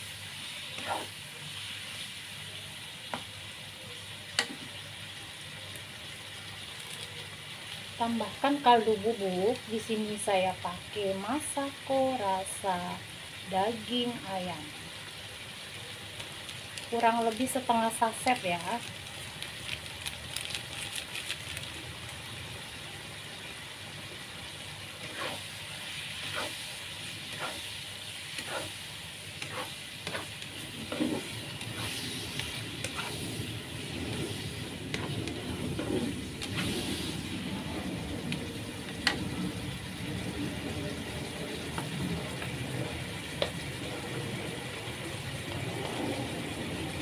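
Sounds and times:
vegetables sizzling in a pan: 0.0 - 47.0
spatula scraping a pan: 0.5 - 1.2, 25.0 - 37.2.

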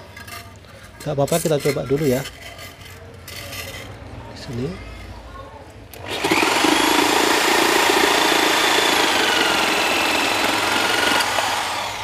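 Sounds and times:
jigsaw cutting wood: 6.0 - 12.0.

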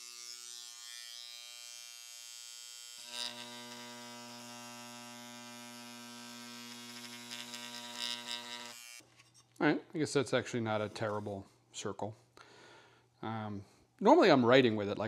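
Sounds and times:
electric engraver buzzing: 0.0 - 9.0.

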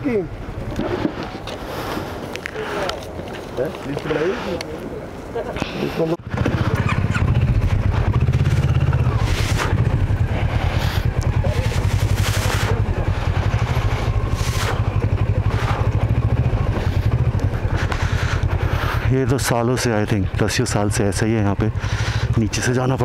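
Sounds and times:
motorcycle engine running: 6.2 - 23.0.

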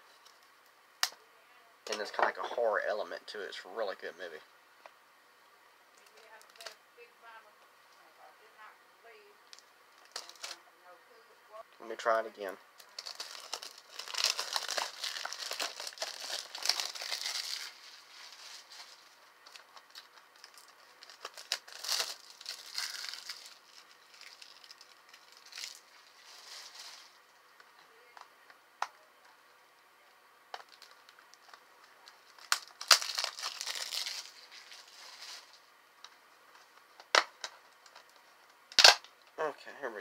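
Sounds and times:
plastic wrap crinkling: 6.0 - 6.8, 9.5 - 10.6, 12.8 - 27.7, 30.6 - 35.6.

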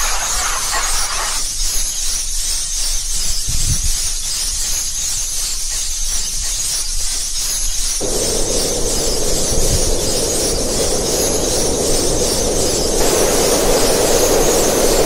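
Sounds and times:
steady loud hiss: 0.0 - 1.8, 8.0 - 15.0
low rumble: 8.0 - 15.0.

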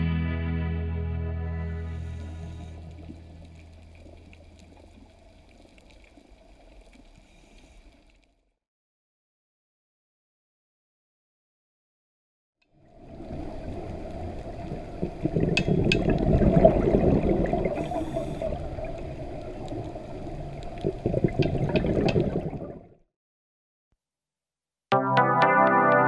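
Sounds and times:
water bubbling and gurgling: 1.9 - 7.4, 12.8 - 23.0.

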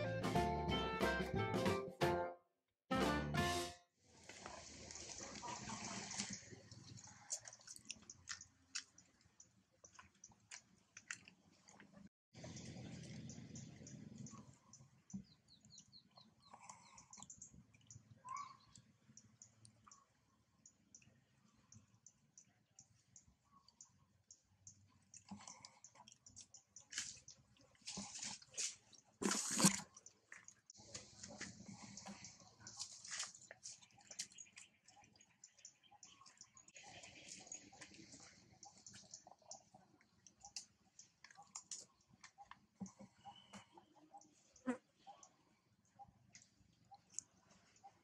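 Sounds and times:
soft clicks and ticks: 6.2 - 45.4, 46.3 - 48.0
scuffs and scrapes of climbing: 26.9 - 30.0, 30.7 - 34.3.

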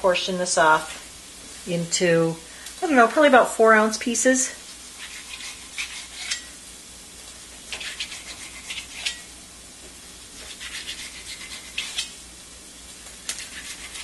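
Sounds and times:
onions sizzling in oil: 0.0 - 13.9
knife scraping cutting board: 4.9 - 6.6, 7.6 - 9.3, 10.4 - 12.2, 13.2 - 14.0
knife sawing through fish: 5.0 - 6.5, 7.7 - 9.2, 10.4 - 12.2, 13.3 - 14.0.

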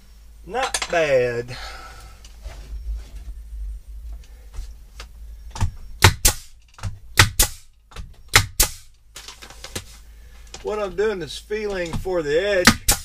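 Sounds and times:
brad nailer shots: 6.0 - 7.7, 8.3 - 8.9, 11.8 - 13.0.

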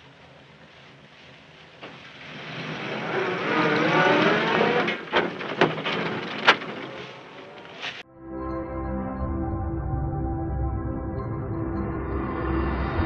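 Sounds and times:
bus engine accelerating: 0.0 - 8.0, 10.4 - 13.0
eerie gong-like music chord: 8.1 - 13.0.

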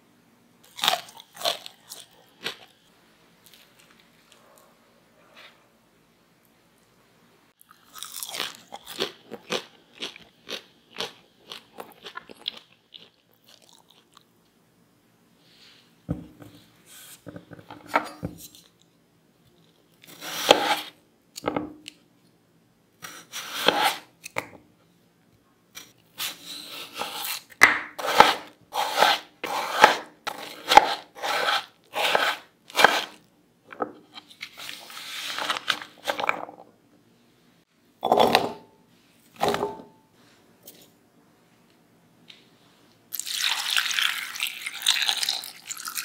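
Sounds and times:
knife scraping board: 20.1 - 20.9, 23.0 - 24.1, 26.2 - 33.2, 34.1 - 36.3
knife slicing potatoes: 20.1 - 21.0, 23.0 - 24.1, 25.8 - 33.2.

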